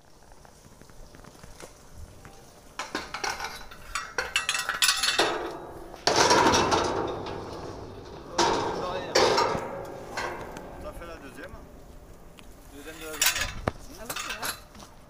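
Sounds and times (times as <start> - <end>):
metal frame clanking on railing: 2.8 - 14.7.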